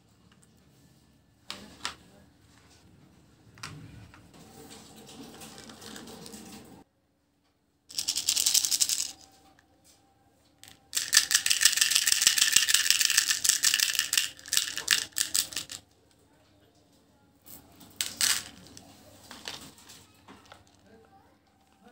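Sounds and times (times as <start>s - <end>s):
candy rattling in plastic toy: 7.9s - 9.3s, 10.6s - 15.8s, 17.5s - 19.8s.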